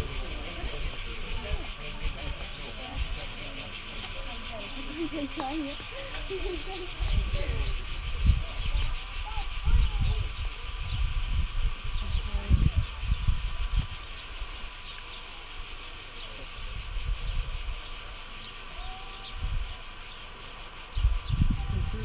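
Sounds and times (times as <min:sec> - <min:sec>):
cicadas buzzing: 0:00.0 - 0:22.0
wind buffeting microphone: 0:05.3 - 0:14.5, 0:16.7 - 0:17.9, 0:20.9 - 0:22.0.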